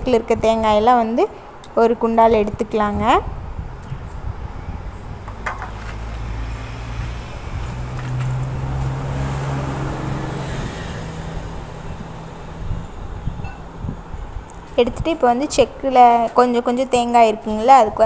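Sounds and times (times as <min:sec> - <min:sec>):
road noise: 0:00.0 - 0:18.0
vehicle engine hum: 0:02.2 - 0:15.1.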